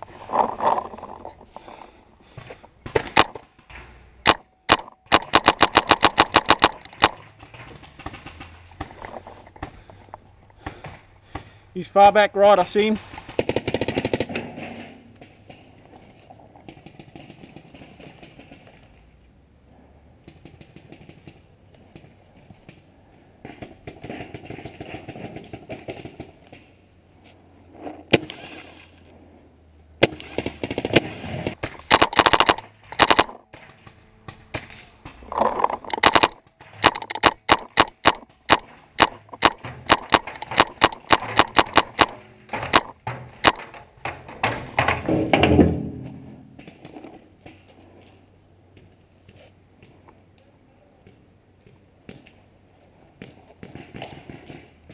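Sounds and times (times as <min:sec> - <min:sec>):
paintball markers firing: 0:02.9 - 0:10.0, 0:30.0 - 0:44.9.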